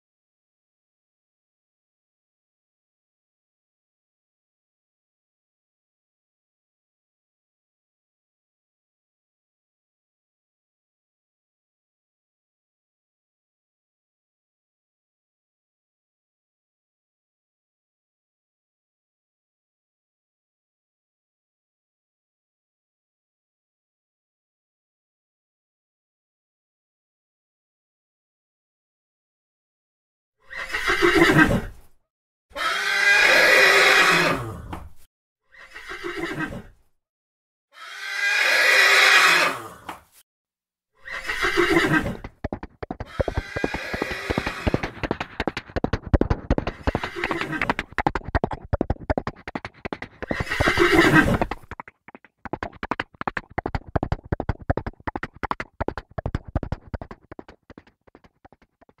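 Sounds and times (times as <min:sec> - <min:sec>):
horse whinnying: 0:30.4 - 0:31.8, 0:32.6 - 0:34.7, 0:35.5 - 0:36.8, 0:37.8 - 0:39.9, 0:41.0 - 0:51.8
galloping hoofbeats: 0:41.1 - 0:59.0.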